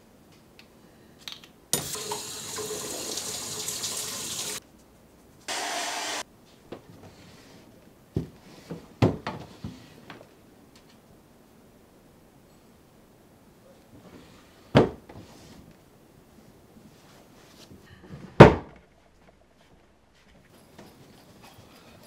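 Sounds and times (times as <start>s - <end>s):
faucet water running: 1.8s - 4.6s
wooden drawer knocks and thuds: 9.0s - 9.5s, 14.8s - 15.2s, 18.3s - 18.8s.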